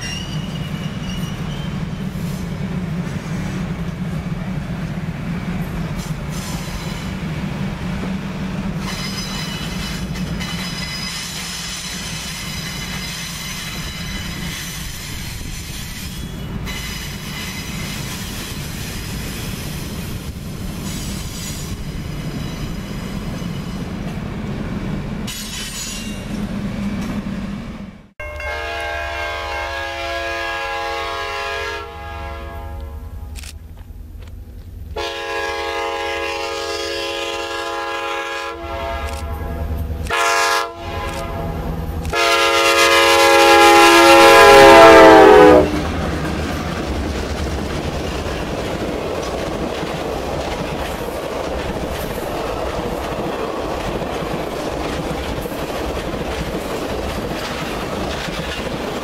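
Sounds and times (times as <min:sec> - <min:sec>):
high squeal from train wheels: 0:00.0 - 0:03.7, 0:05.9 - 0:07.3, 0:08.8 - 0:24.1, 0:25.3 - 0:27.2
rail joints clacking: 0:00.0 - 0:29.0, 0:36.6 - 0:59.0
train cars rumbling past: 0:00.0 - 0:59.0
locomotive horn blast: 0:28.2 - 0:33.4, 0:35.0 - 0:46.0.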